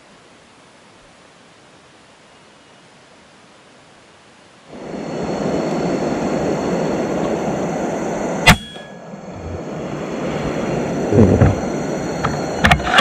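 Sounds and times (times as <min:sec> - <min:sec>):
steady rushing noise: 0:04.7 - 0:13.0
air rifle firing: 0:08.5 - 0:08.8.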